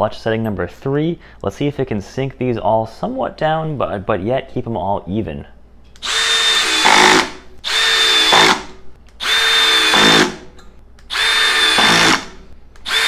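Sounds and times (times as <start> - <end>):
drill clutch slipping: 6.0 - 10.4, 11.1 - 13.0
cordless drill driving screws: 6.0 - 10.5, 11.1 - 13.0.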